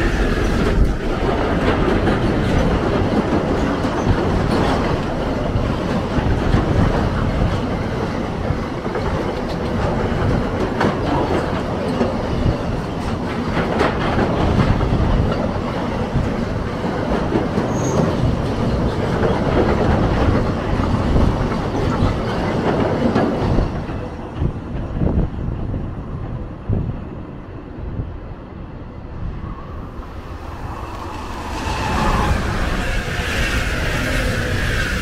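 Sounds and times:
train wagons knocking: 0:00.0 - 0:25.2
train wheels rumbling on rails: 0:00.0 - 0:35.0.

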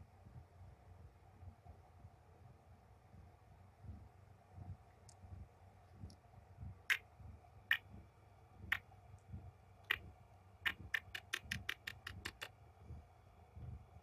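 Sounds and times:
lip kisses smacking: 0:10.7 - 0:12.5.

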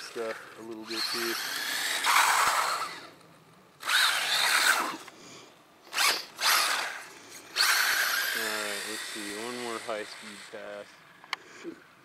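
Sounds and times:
toy car electric motor whining: 0:00.8 - 0:03.2, 0:03.8 - 0:05.1, 0:05.9 - 0:10.9.

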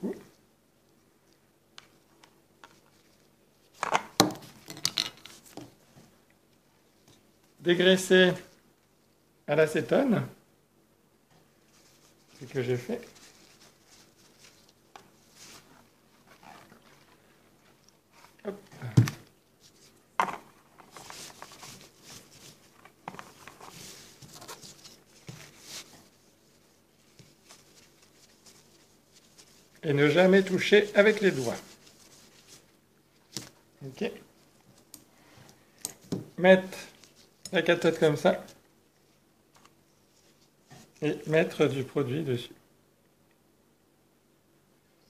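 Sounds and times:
cloth rubbing on metal: 0:11.6 - 0:18.4, 0:20.8 - 0:32.8.

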